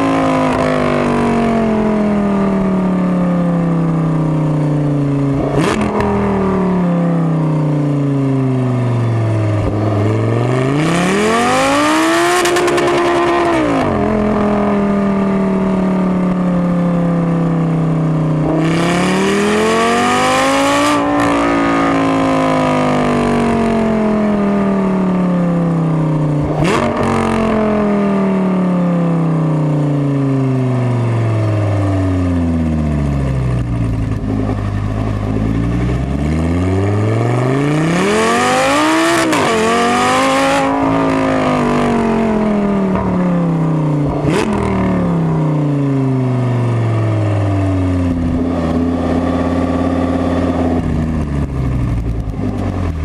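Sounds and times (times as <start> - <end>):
sports car engine accelerating: 0.0 - 53.0
exhaust cracks: 40.8 - 46.0, 48.1 - 53.0.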